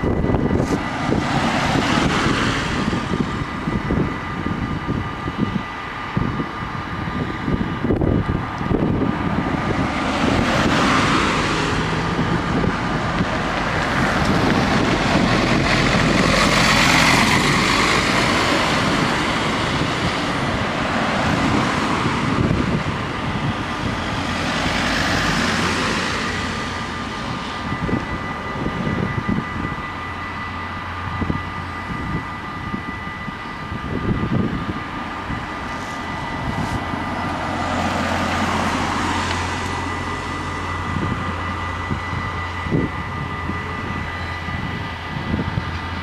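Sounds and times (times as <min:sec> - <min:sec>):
cars driving past: 0:00.0 - 0:32.2, 0:32.9 - 0:46.0
wind on microphone: 0:00.0 - 0:46.0
higher tone: 0:08.4 - 0:46.0
faint steady high tone: 0:26.2 - 0:37.4, 0:38.8 - 0:46.0.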